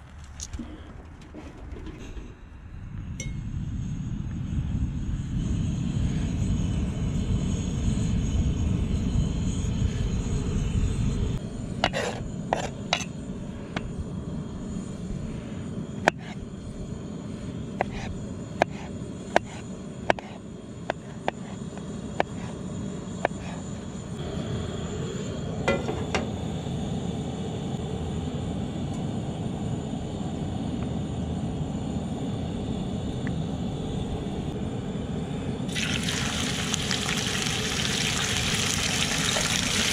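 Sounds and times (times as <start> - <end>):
burner hissing: 3.8 - 28.4, 31.8 - 39.9
knife slicing against a plate: 11.8 - 13.1.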